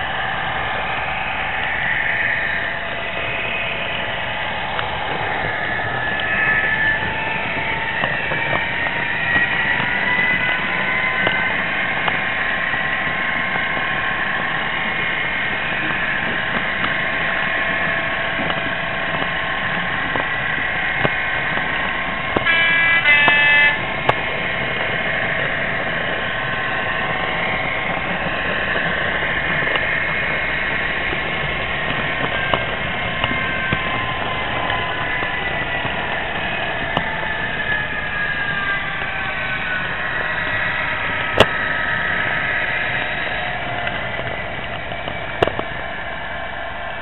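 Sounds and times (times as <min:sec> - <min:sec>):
diesel locomotive engine through speaker: 0:00.0 - 0:47.0
two-tone train horn: 0:05.3 - 0:29.0, 0:30.6 - 0:44.4.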